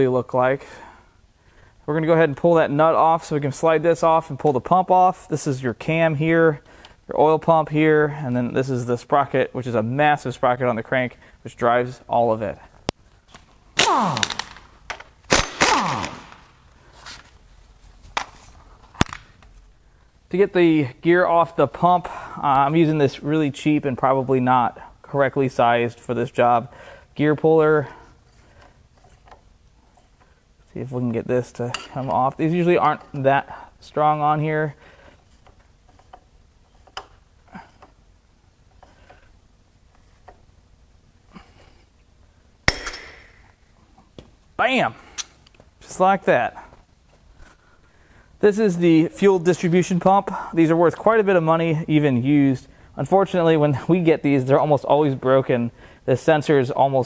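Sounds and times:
impact wrench whirring: 13.8 - 14.6, 15.3 - 16.5.

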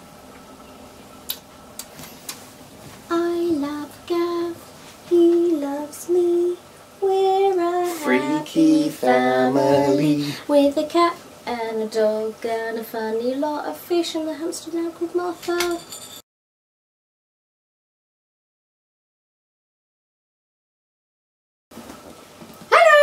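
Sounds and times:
woman singing: 3.1 - 15.9
man singing: 7.8 - 10.4.

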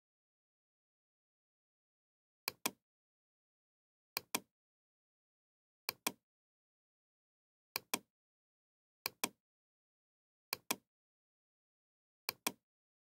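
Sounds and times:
computer mouse button clicks: 5.9 - 6.2, 12.3 - 12.6.

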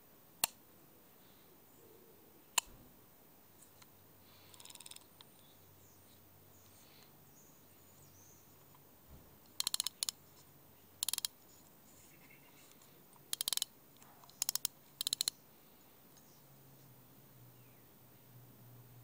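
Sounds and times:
fishing reel clicking: 4.5 - 5.0, 9.6 - 10.2, 11.0 - 11.3, 13.3 - 13.7, 14.4 - 15.3.

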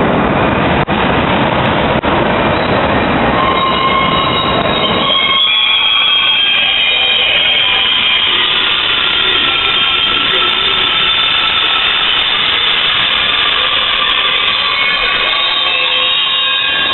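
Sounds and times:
train rumble: 0.0 - 16.9
train wheels squealing: 3.4 - 16.9.

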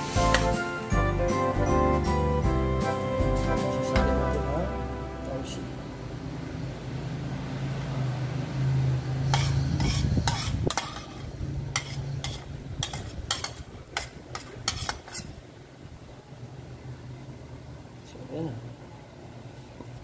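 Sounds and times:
low steady hum: 0.1 - 7.8
metal spoon scraping pan: 9.3 - 15.4.

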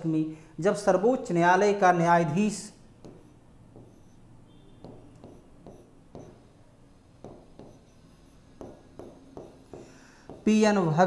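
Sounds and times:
marker writing on whiteboard: 2.8 - 11.0.

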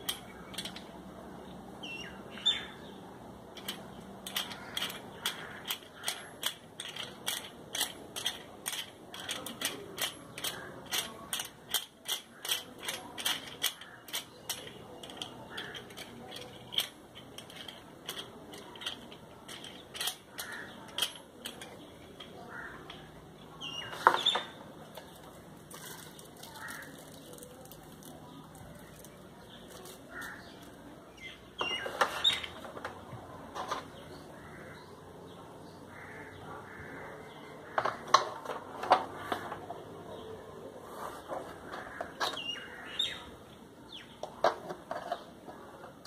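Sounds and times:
plastic and metal parts rattling: 0.0 - 1.0, 3.5 - 34.2, 37.6 - 39.8, 44.2 - 46.0.

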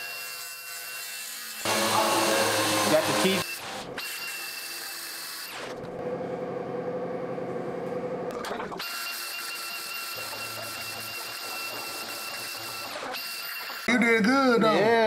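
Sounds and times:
angle grinder grinding steel: 0.0 - 5.7, 8.9 - 13.9.

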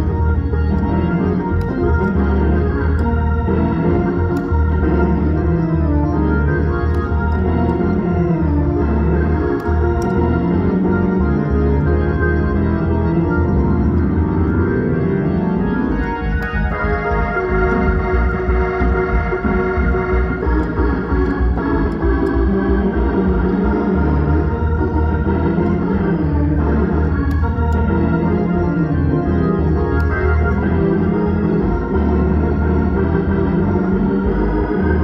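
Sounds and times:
organ music: 0.0 - 35.0.

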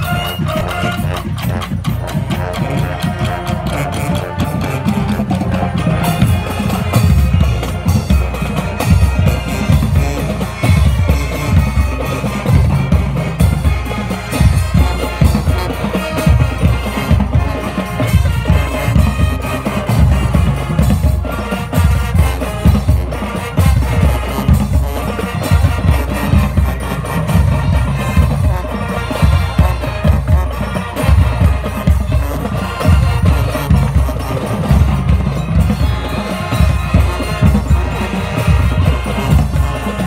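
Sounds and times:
brass: 0.0 - 40.0
marimbas: 0.0 - 40.0
snare and bass drums: 0.0 - 40.0.

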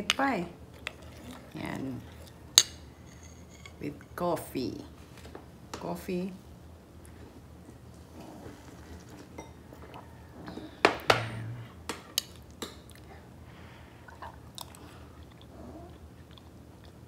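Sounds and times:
soft chewing: 0.7 - 4.2, 7.0 - 10.8, 11.6 - 17.0.

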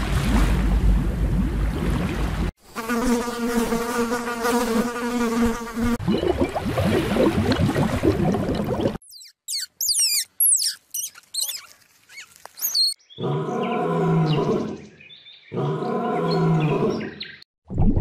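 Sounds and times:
squirrel chirps and squeaks: 9.0 - 13.0
lion roars: 13.2 - 14.9, 15.5 - 17.2.

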